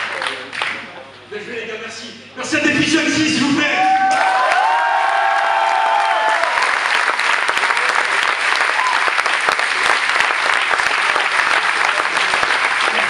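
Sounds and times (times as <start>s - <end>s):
crowd clapping: 0.0s - 0.9s, 4.1s - 13.0s
crowd cheering: 3.7s - 13.0s.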